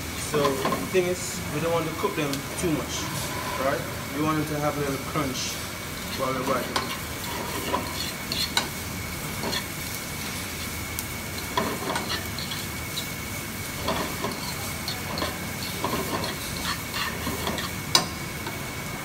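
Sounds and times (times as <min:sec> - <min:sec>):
vegetables sizzling in oil: 0:00.0 - 0:19.0
fork scraping and clinking on pan: 0:06.0 - 0:09.8, 0:11.4 - 0:13.2, 0:13.8 - 0:18.1.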